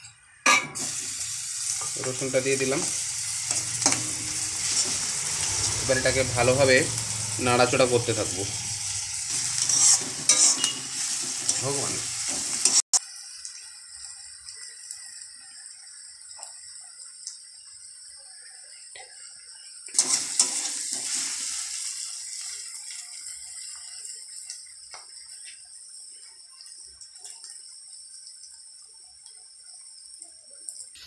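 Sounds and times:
onions sizzling in hot oil: 0:00.2 - 0:31.0
spatula scraping a pan: 0:09.3 - 0:12.8, 0:20.0 - 0:21.4.

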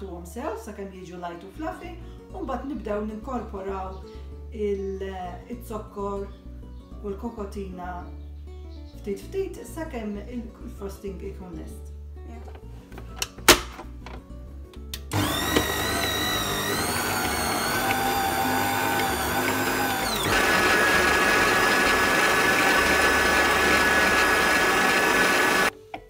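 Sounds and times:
stand mixer motor whining: 0:15.1 - 0:25.7.

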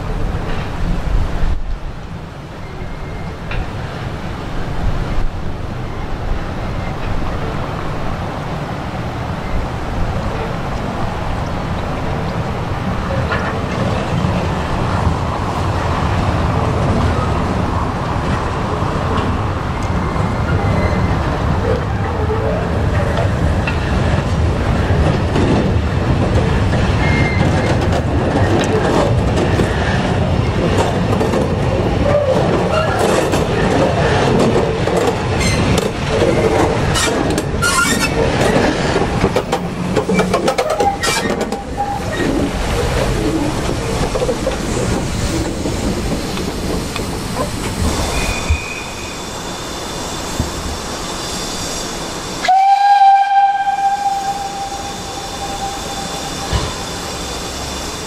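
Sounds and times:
steam locomotive rumbling past: 0:02.6 - 0:58.0
wheels clicking over rail joints: 0:22.9 - 0:47.9
loud steam whistle: 0:52.4 - 0:58.0.

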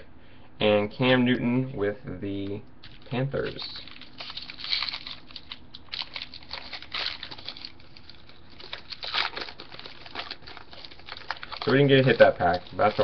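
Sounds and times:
card wrappers rustling and crinkling: 0:02.8 - 0:13.0.

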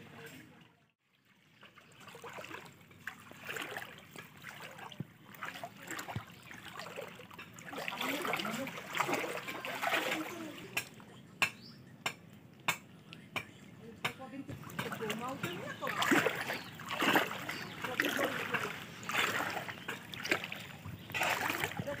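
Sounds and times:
floodwater sloshing and trickling: 0:00.0 - 0:11.3, 0:14.3 - 0:22.0
splashes of person wading: 0:01.1 - 0:11.0, 0:14.6 - 0:22.0.

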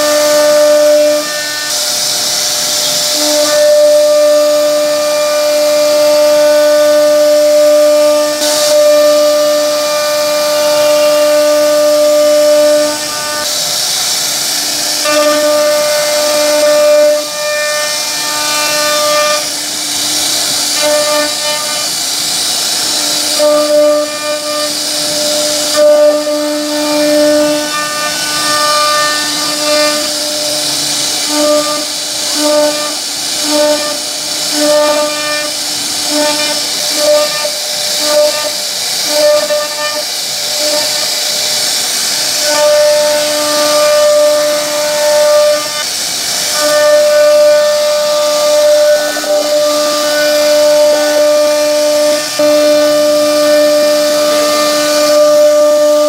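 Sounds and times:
router spindle whining: 0:00.0 - 0:56.0
hissing cutting noise: 0:08.2 - 0:56.0.

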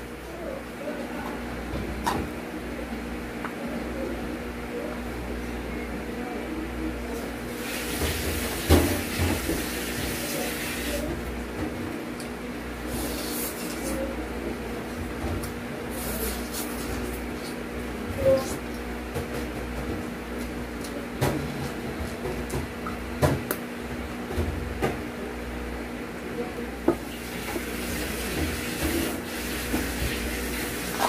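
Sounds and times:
steady low hum: 0:00.0 - 0:07.6.

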